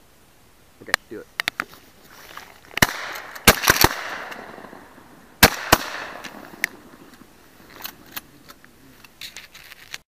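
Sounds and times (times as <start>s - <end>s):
shotgun shots with echo: 2.8s - 4.8s, 5.4s - 6.4s.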